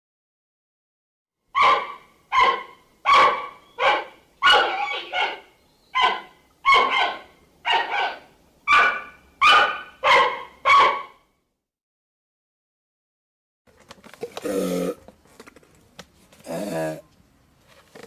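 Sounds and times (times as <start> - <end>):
panda barking: 1.5 - 11.2.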